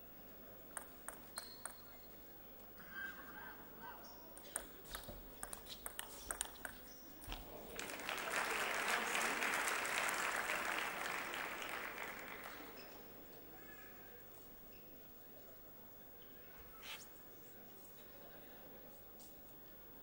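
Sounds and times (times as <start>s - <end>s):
table tennis ball clicking: 0.8s - 1.9s, 4.4s - 6.9s
crowd applauding: 7.6s - 12.9s.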